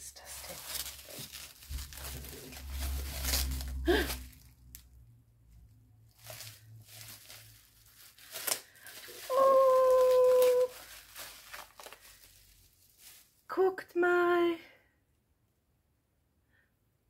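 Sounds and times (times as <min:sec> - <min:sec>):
wrapping paper rustling: 0:00.0 - 0:04.9, 0:06.0 - 0:13.5.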